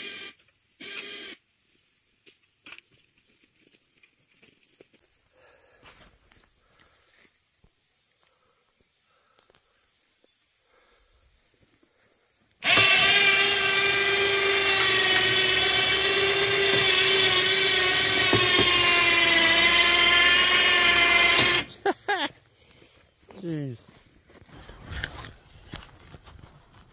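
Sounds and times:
small electric motor whining: 0:00.0 - 0:01.4, 0:12.6 - 0:21.8.

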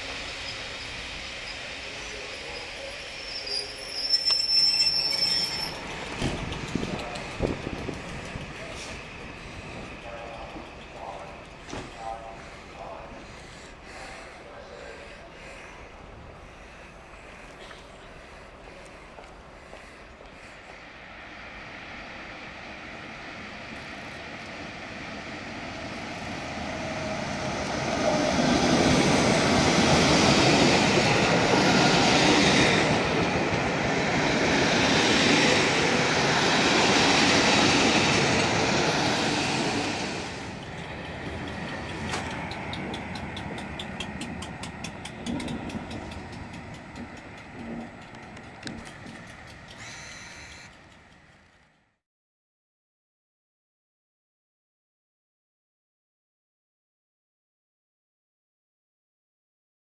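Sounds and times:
passenger train passing at speed: 0:00.0 - 0:52.0
wheels clicking over rail joints: 0:05.5 - 0:12.3, 0:35.2 - 0:51.9.

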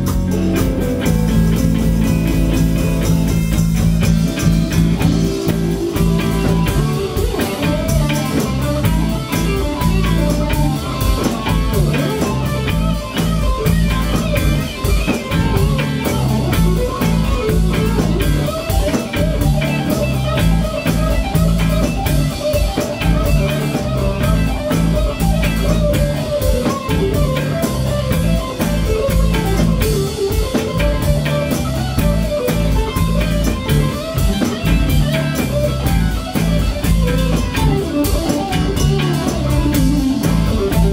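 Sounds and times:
drum kit: 0:00.0 - 0:40.9
electric guitars: 0:00.0 - 0:40.9.

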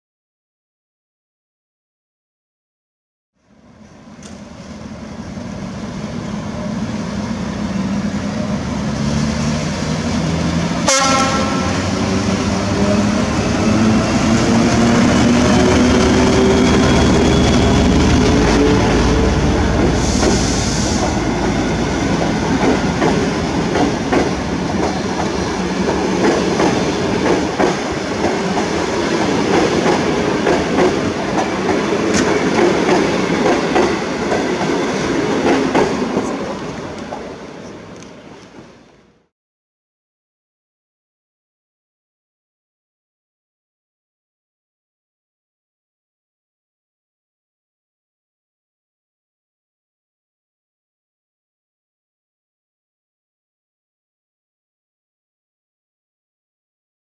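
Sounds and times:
diesel locomotive engine accelerating: 0:03.5 - 0:39.0
train horn toot: 0:10.8 - 0:11.9
train wheels clickety-clack: 0:19.7 - 0:37.3
brief hiss: 0:20.0 - 0:21.2.

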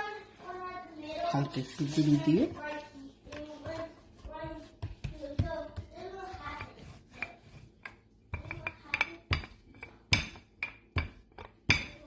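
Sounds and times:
dough rubbing: 0:00.0 - 0:12.0
rolling pin knocking on wooden board: 0:03.3 - 0:12.0.

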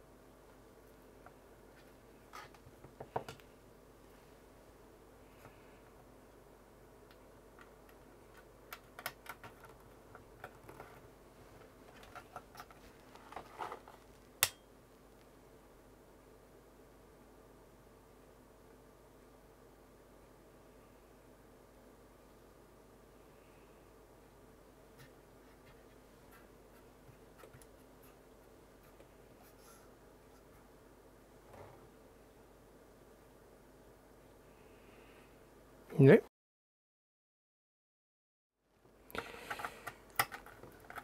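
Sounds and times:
faint steady hum: 0:00.0 - 0:36.2, 0:38.6 - 0:41.0
hands handling circuit board: 0:07.1 - 0:11.0, 0:11.6 - 0:14.6, 0:39.2 - 0:41.0.

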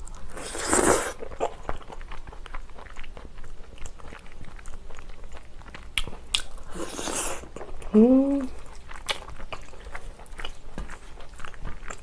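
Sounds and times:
close chewing mouth clicks: 0:08.5 - 0:12.0.

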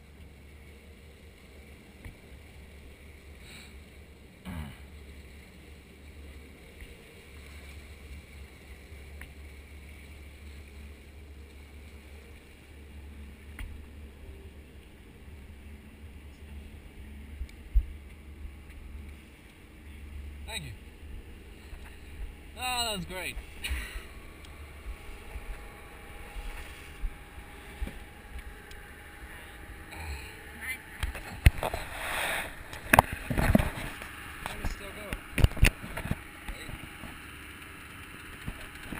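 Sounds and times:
boat engine running: 0:00.0 - 0:38.9
low wind rumble: 0:00.0 - 0:38.9
water rushing along hull: 0:00.0 - 0:38.9
faint clicks: 0:17.4 - 0:20.0.

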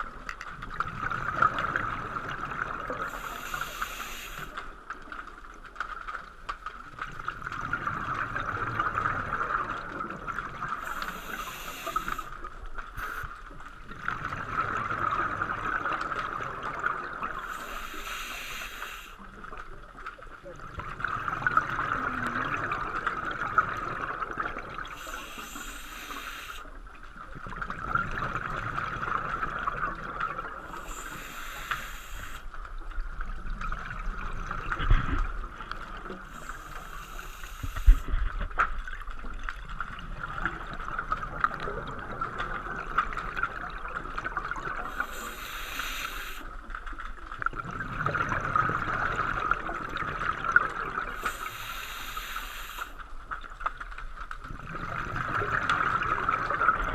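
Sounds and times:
diver breathing through regulator: 0:03.1 - 0:04.6, 0:10.8 - 0:12.4, 0:17.4 - 0:19.2, 0:24.9 - 0:26.7, 0:30.7 - 0:32.5, 0:36.3 - 0:38.2, 0:44.9 - 0:46.5, 0:51.2 - 0:53.0.

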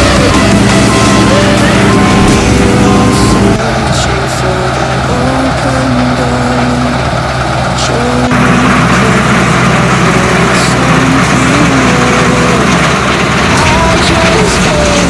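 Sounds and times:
music melody: 0:00.0 - 0:05.8
combine harvester engine and threshing: 0:00.0 - 0:15.0.

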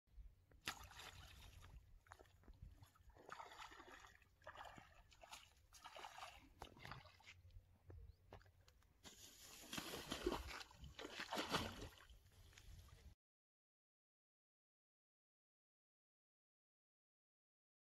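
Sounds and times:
fish splashing at water surface: 0:09.1 - 0:12.1.

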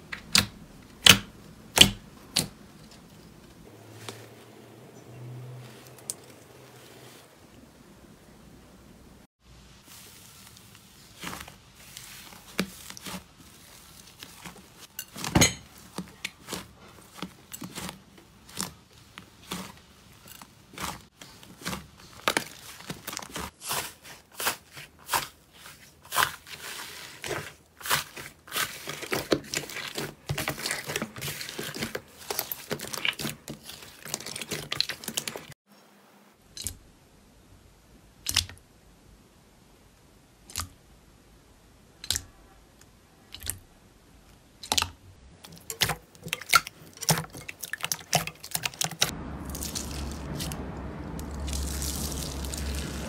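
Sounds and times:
slime crust crackling and popping: 0:09.9 - 0:15.2, 0:26.1 - 0:35.5, 0:47.5 - 0:53.0
slime squishing and tearing: 0:10.0 - 0:35.5, 0:45.4 - 0:53.0.

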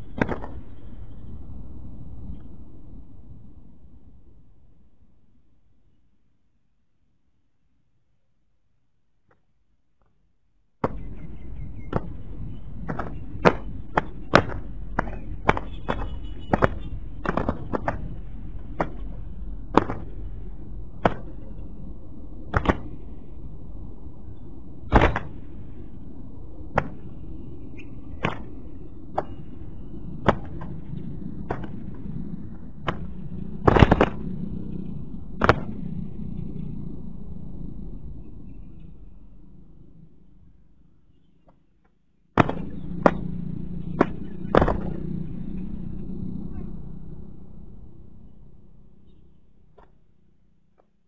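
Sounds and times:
low background noise: 0:00.0 - 0:51.0.

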